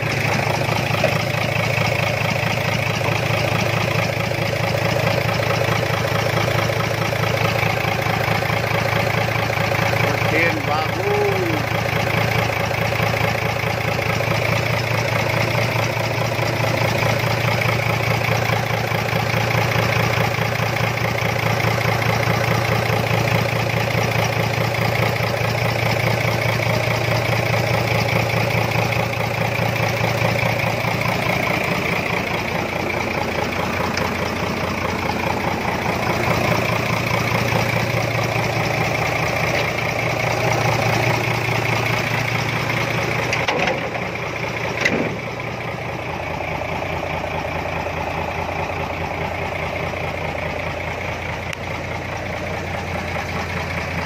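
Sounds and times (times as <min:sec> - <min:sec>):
diesel engine idling: 0:00.0 - 0:54.0.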